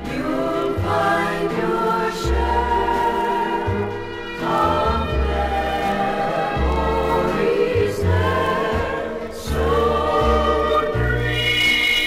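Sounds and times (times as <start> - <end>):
bass line: 0.0 - 12.0.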